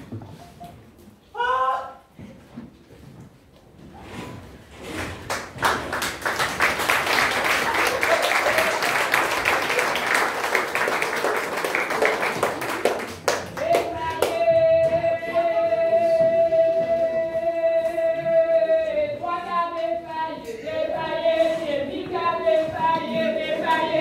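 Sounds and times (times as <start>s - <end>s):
audience applauding: 5.3s - 14.3s.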